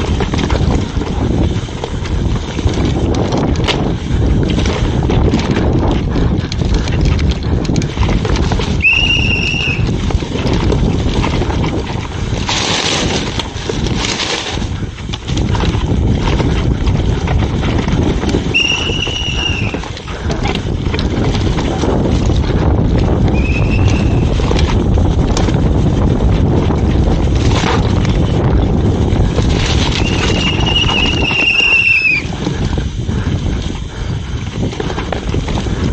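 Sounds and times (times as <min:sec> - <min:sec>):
bike rattling over bumps: 0:00.0 - 0:35.9
bike tyres rumbling over dirt: 0:00.0 - 0:35.9
wind buffeting microphone: 0:00.0 - 0:35.9
disc brakes squealing: 0:08.8 - 0:09.8, 0:18.5 - 0:19.8, 0:23.4 - 0:24.3, 0:30.0 - 0:32.3.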